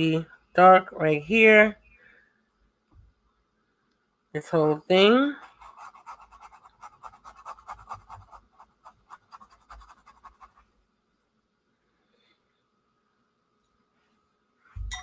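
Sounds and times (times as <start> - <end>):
paintbrush brushing on paper: 5.3 - 10.8.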